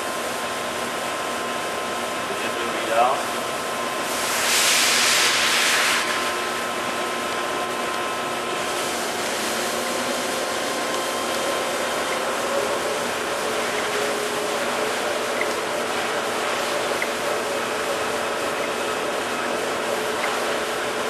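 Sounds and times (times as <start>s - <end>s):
lathe humming with faint whine: 5.3s - 21.0s.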